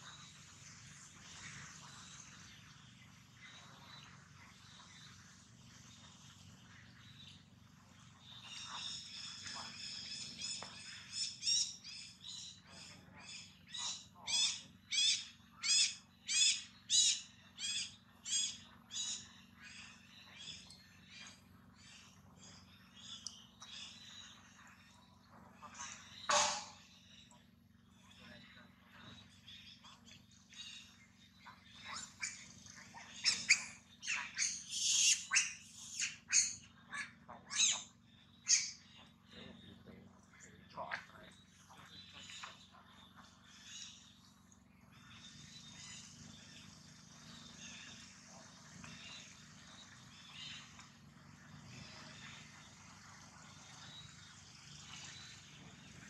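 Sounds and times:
high-pitched squawking calls: 13.7 - 19.2, 31.8 - 38.8.

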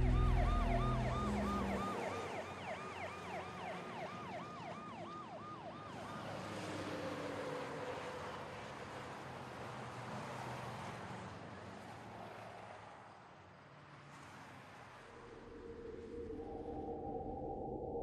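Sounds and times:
ambulance siren yelping: 0.0 - 7.7.

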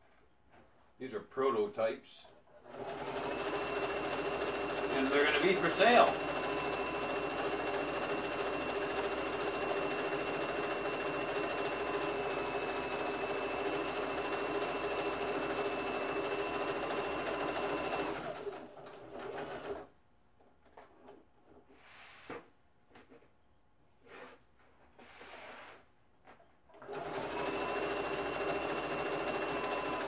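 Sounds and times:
sewing machine running: 2.6 - 19.9, 26.8 - 30.0.

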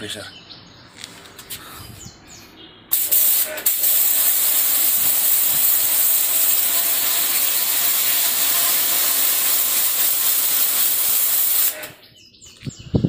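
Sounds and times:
pressure washer jet hissing: 2.9 - 12.0.

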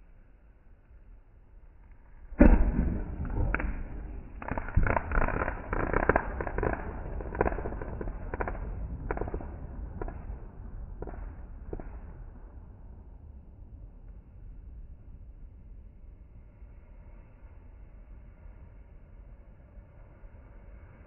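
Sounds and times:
fireworks crackling pops: 2.3 - 12.2
loud firework bang: 2.4 - 10.4.

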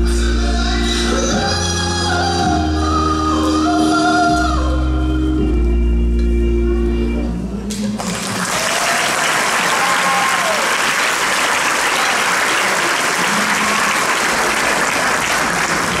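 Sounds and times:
audience applauding: 8.0 - 16.0
short cheers: 8.5 - 14.2.

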